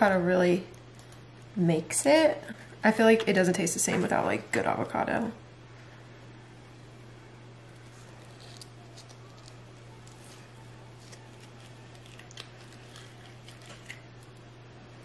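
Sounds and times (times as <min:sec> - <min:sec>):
steady low hum: 0:00.0 - 0:15.0
knife scraping avocado: 0:07.8 - 0:14.2.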